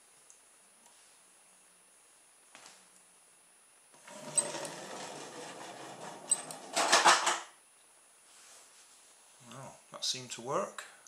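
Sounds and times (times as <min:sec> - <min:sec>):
toy car clatter: 0:06.4 - 0:07.4.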